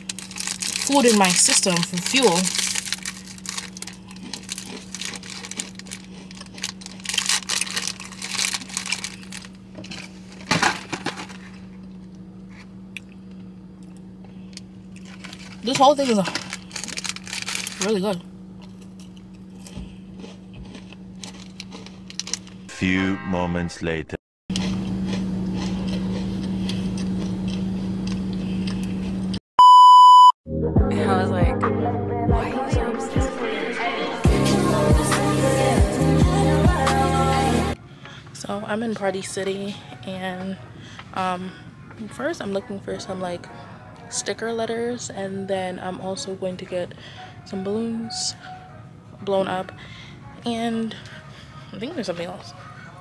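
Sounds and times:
snack wrapper crinkling: 0.0s - 10.5s, 14.9s - 18.0s, 18.6s - 22.6s
biscuits being crunched: 0.0s - 11.6s, 14.6s - 18.0s, 18.6s - 22.6s
steady low hum: 0.0s - 29.4s, 34.0s - 53.0s
hip hop music: 22.7s - 24.1s, 30.6s - 37.7s
test tone beep: 29.6s - 30.3s.

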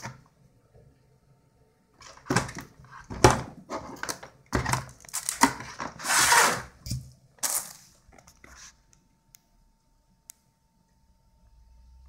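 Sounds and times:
plastic case knocks and clatter: 2.0s - 6.0s.

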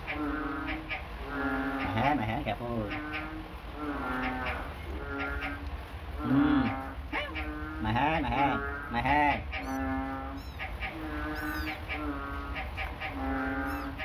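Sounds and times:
cat meowing: 11.3s - 11.8s.

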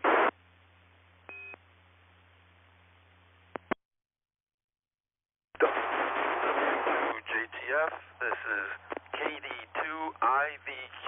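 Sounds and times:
loud rush of radio static: 0.0s - 0.3s, 5.6s - 11.0s
faint radio hiss: 0.0s - 3.8s, 5.6s - 11.0s
radio clicks: 7.4s - 10.1s.

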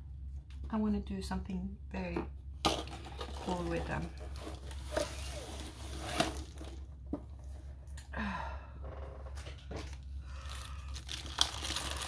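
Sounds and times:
low steady hum: 0.0s - 12.0s
plastic sleeve rustling: 3.1s - 6.9s, 10.3s - 12.0s.

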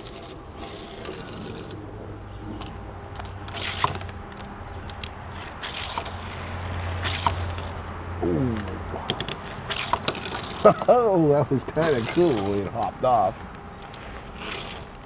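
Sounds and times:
toy car rolling scrape: 0.0s - 1.8s, 3.2s - 7.8s, 9.2s - 10.9s, 11.8s - 12.7s, 13.8s - 15.0s
toy car clicking on track: 9.1s - 10.8s.

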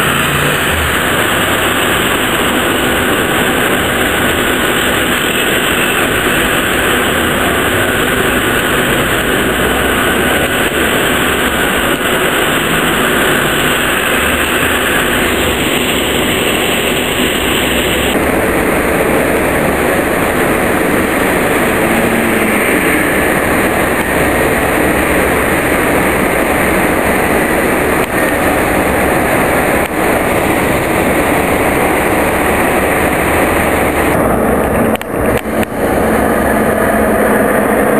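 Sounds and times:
tram passing: 0.0s - 37.9s
vehicles driving past: 0.0s - 37.9s.

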